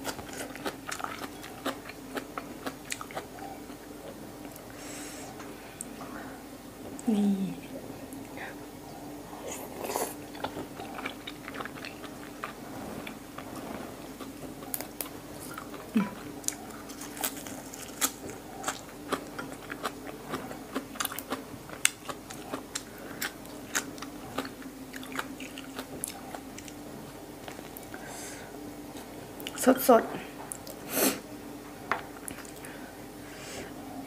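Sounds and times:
person chewing wetly: 0:00.0 - 0:04.7, 0:09.6 - 0:26.8
steady low hum: 0:00.0 - 0:34.0.

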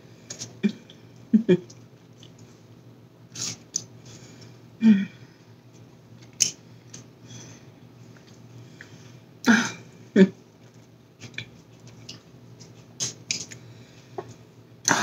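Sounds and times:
person chewing: 0:01.6 - 0:02.4, 0:03.3 - 0:04.0, 0:10.6 - 0:14.3.

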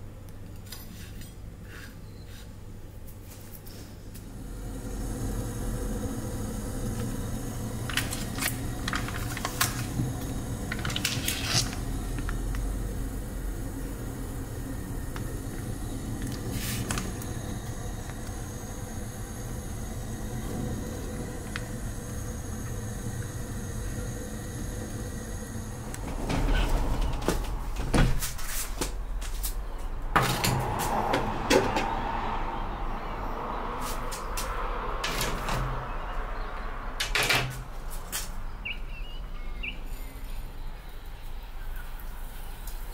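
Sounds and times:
water heating low rumble: 0:04.1 - 0:37.9.

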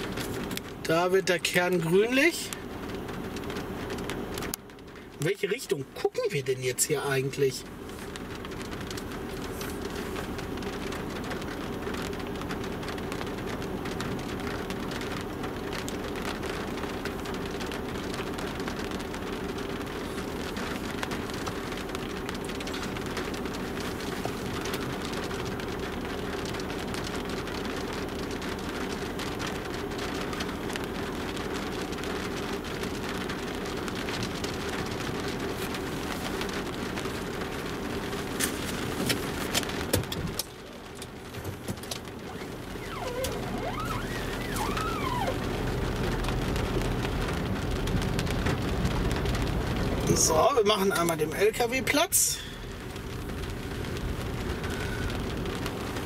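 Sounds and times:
constant low hum: 0:00.0 - 0:50.3
rain pattering on a car: 0:00.0 - 0:56.0.

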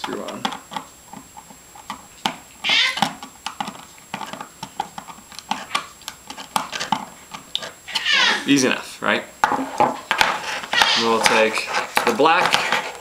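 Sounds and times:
high wavering cry: 0:02.6 - 0:03.0, 0:07.9 - 0:08.5.

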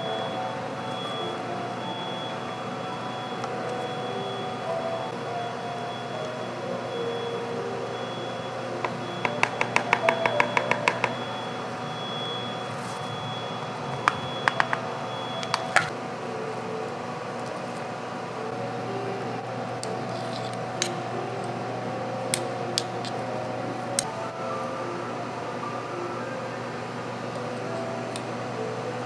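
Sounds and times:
steady hum: 0:00.0 - 0:29.0
spoon tapping plastic tub: 0:08.8 - 0:11.2.

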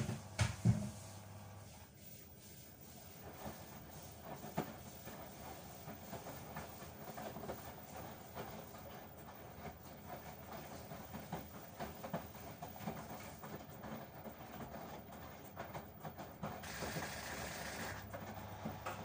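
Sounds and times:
laundry knocking in drum: 0:00.0 - 0:01.0.

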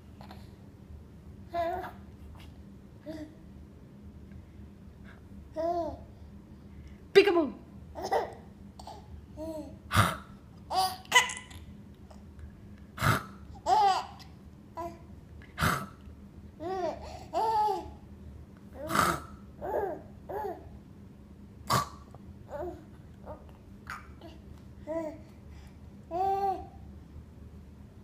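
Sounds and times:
baby laughing: 0:10.7 - 0:11.6
baby babbling: 0:18.8 - 0:20.7, 0:26.1 - 0:26.7.

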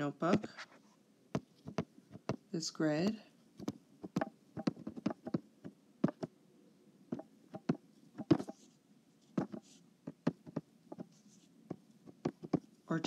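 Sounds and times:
stylus tapping on glass screen: 0:03.6 - 0:05.4.

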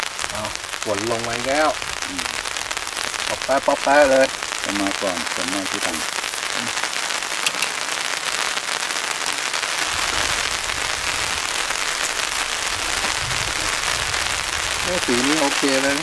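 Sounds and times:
rain pattering on a tent: 0:00.0 - 0:16.0
low rumble: 0:09.9 - 0:15.1.

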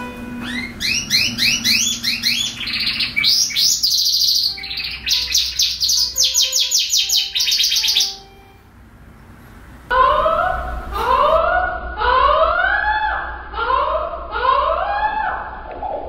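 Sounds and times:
canary singing: 0:00.0 - 0:08.8, 0:09.9 - 0:13.8.

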